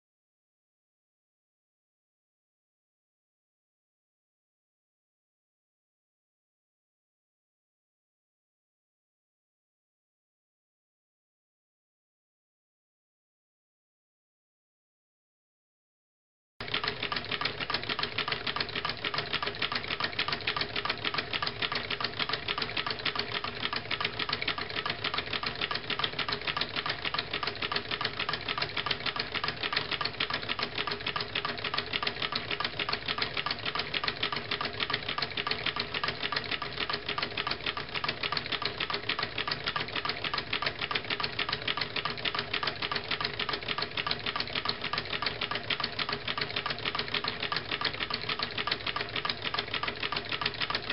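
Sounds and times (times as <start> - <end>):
small engine rapid clicking: 16.6 - 50.9.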